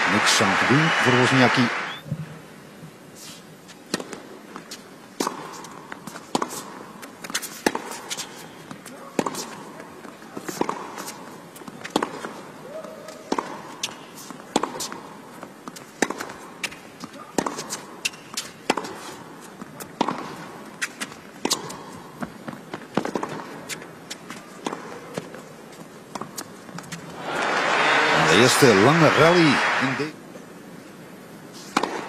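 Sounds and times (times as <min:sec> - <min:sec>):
racquets hitting tennis ball: 0:03.8 - 0:12.4, 0:13.0 - 0:27.2, 0:31.7 - 0:32.0.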